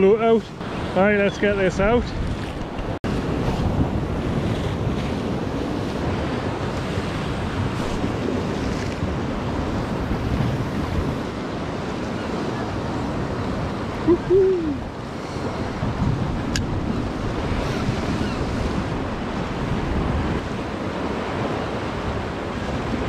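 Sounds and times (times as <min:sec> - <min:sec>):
surf washing against rocks: 0:00.0 - 0:23.0
wind buffeting microphone: 0:00.0 - 0:23.0
short hooting call: 0:14.1 - 0:14.8.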